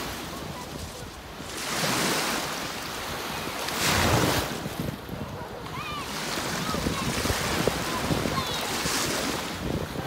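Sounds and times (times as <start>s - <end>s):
lake water waves washing ashore: 0.0s - 10.0s
wind on microphone: 0.0s - 10.0s.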